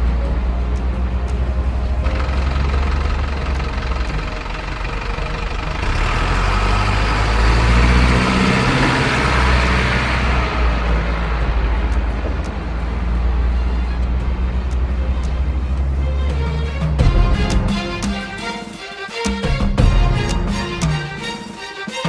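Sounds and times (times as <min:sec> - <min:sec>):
water rushing and splashing: 0:01.4 - 0:17.0
rc truck engine running: 0:02.0 - 0:14.9.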